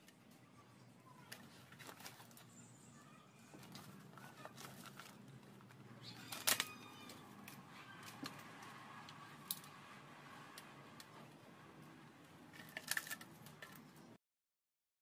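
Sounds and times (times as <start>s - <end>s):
plastic lens clicks and rustles: 12.5s - 14.0s.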